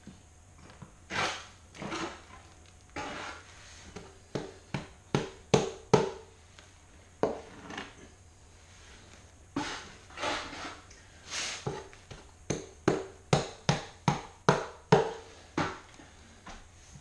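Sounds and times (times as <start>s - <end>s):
trowel scraping mortar on tile: 1.1s - 2.4s, 3.0s - 3.6s, 7.3s - 8.0s, 9.6s - 11.9s.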